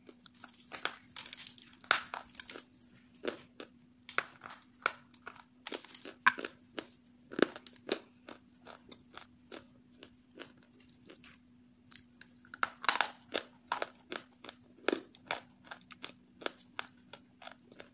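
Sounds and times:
dry clay crunching: 0.0s - 17.9s.

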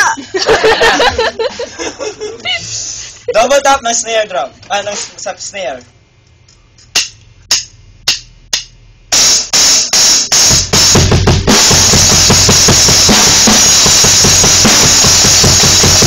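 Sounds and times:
drum kit playing: 6.8s - 16.0s.

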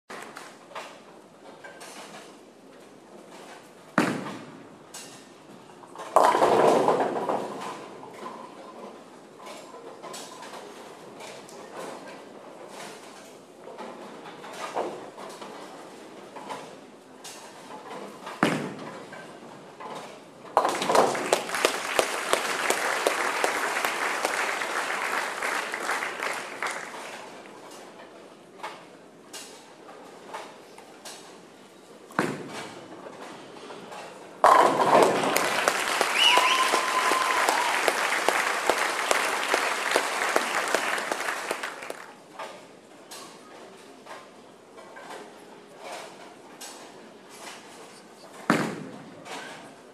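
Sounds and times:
bowling pins crashing: 6.2s - 7.7s, 20.6s - 27.3s, 34.4s - 42.0s
bowling ball thudding on lane: 20.6s - 24.3s, 34.4s - 36.0s
crowd applauding and cheering: 21.0s - 27.4s, 34.8s - 42.2s.

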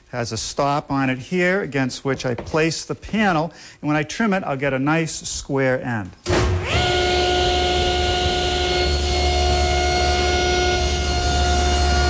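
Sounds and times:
power saw motor whining: 6.3s - 12.0s.

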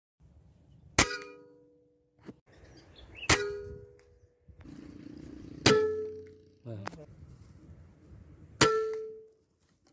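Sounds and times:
air rifle shots with ringing ping: 1.0s - 1.7s, 3.3s - 4.0s, 5.6s - 6.4s, 8.6s - 9.3s.

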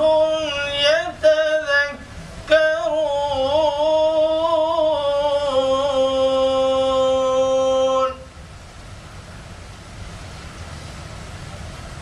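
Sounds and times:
man chanting melodically: 0.0s - 8.3s.

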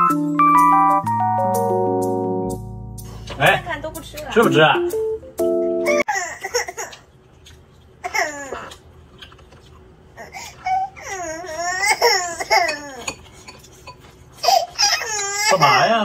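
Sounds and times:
toddler crying: 10.2s - 13.2s, 14.4s - 16.0s.

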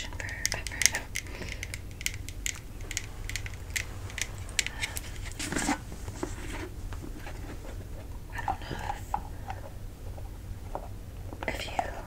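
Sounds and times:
light clicks and taps: 0.0s - 5.8s
short rustle: 2.7s - 8.0s.

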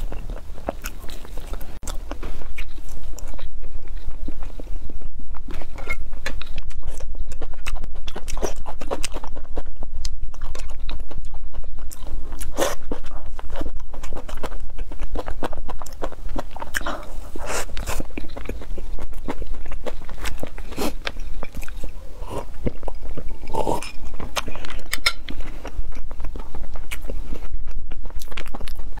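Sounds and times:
biting and chewing food: 0.0s - 29.0s
steady low hum: 0.0s - 29.0s.

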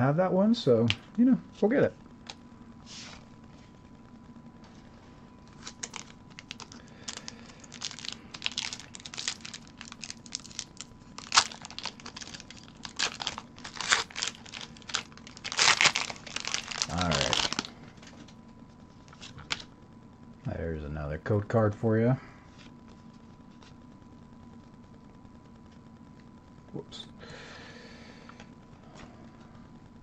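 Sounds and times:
foil wrapper crinkling and tearing: 5.5s - 17.8s.

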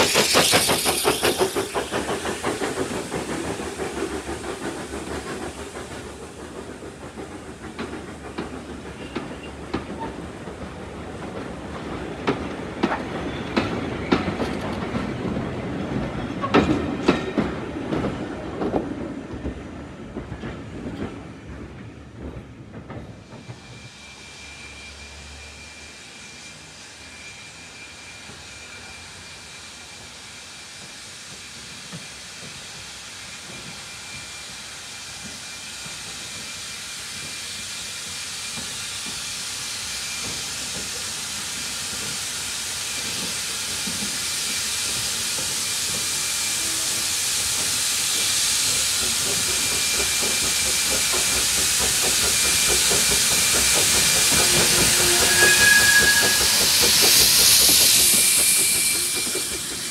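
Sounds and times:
steam locomotive hissing steam: 0.0s - 59.9s.

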